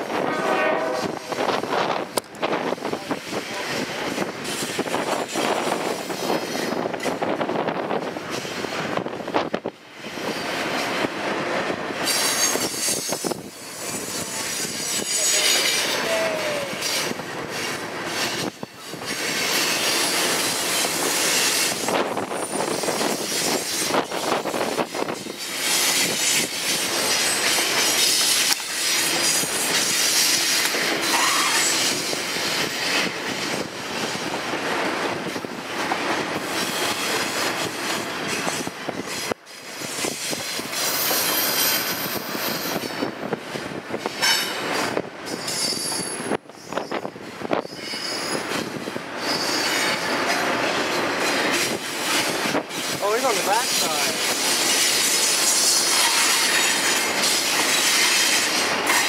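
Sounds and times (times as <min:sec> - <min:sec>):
train wheels on rails: 0:00.0 - 0:59.0
wheel squeal: 0:27.1 - 0:33.0, 0:45.3 - 0:48.6, 0:49.2 - 0:50.1.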